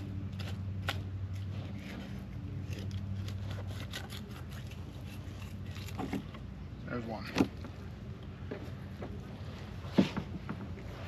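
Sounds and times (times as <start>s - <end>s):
low engine hum: 0.0s - 11.0s
knife scraping fish bones: 0.4s - 6.3s.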